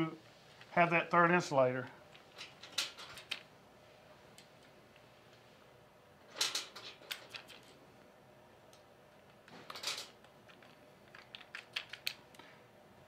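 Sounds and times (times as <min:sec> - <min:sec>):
plastic insulators clicking: 0:10.2 - 0:12.4.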